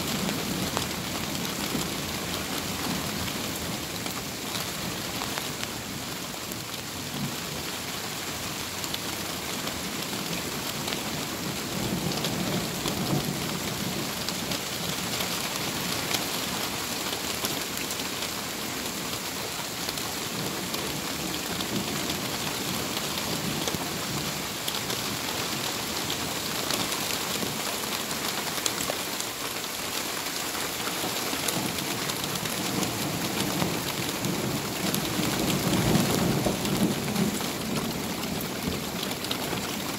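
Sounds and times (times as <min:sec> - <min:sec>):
torrential rain pouring: 0:00.0 - 0:39.9.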